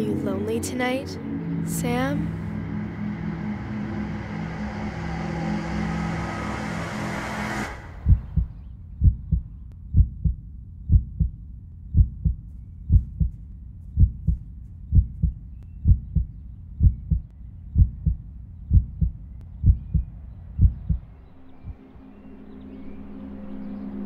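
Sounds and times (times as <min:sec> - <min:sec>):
heartbeat thumps: 0:08.0 - 0:21.8.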